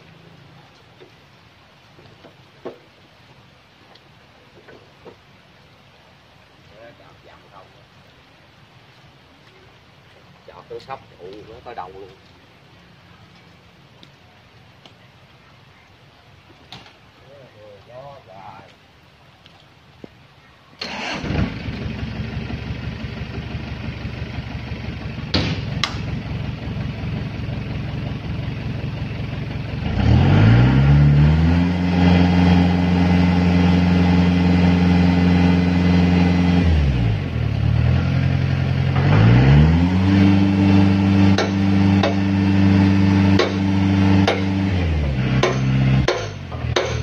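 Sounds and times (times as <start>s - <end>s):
engine idling and revving: 20.8s - 47.0s.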